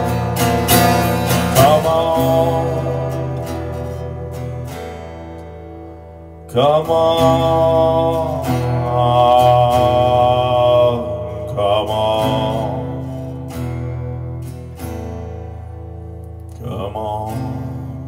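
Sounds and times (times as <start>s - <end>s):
man singing wordless held notes: 0.0s - 4.7s, 6.5s - 13.6s, 16.6s - 18.0s
acoustic guitar drone chord: 0.0s - 18.0s.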